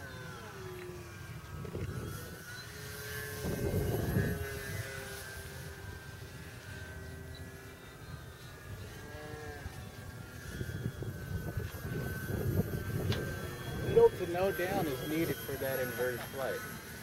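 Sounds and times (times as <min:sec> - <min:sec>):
model plane motor whine: 0:00.0 - 0:17.0
wind buffeting microphone: 0:01.1 - 0:02.5, 0:03.1 - 0:05.2, 0:09.6 - 0:15.6.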